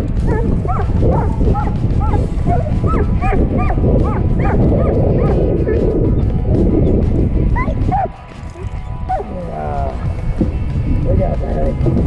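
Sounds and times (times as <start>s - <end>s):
steady low rumble: 0.0s - 12.0s
dog whining and yipping: 0.3s - 5.9s, 7.5s - 9.4s.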